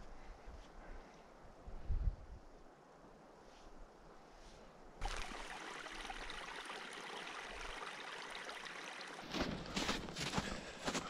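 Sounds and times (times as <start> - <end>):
stream running over rocks: 5.0 - 10.1.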